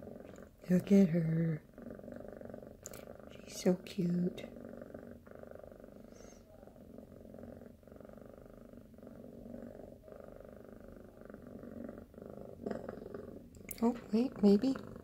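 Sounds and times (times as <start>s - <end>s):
kitten purring: 0.0s - 15.0s.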